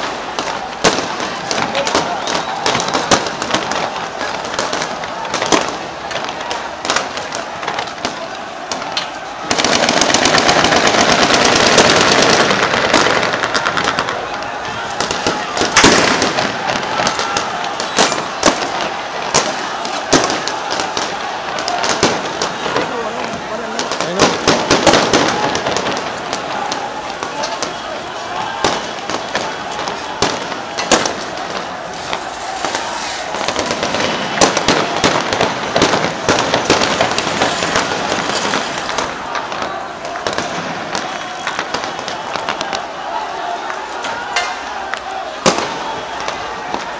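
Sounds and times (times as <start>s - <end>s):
gunfire cracks: 0.0s - 27.8s
gunshots: 0.0s - 43.6s
street din: 0.0s - 46.9s.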